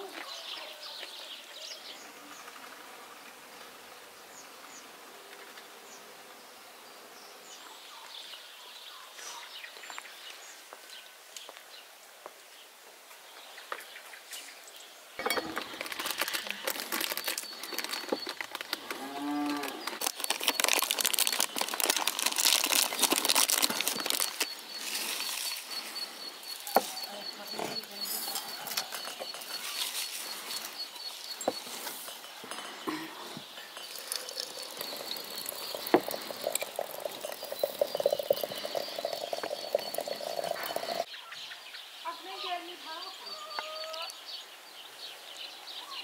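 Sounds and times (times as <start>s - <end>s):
foil packet crinkling: 15.4s - 25.9s
cow mooing: 18.9s - 20.0s
faint bird chirps: 23.5s - 46.0s.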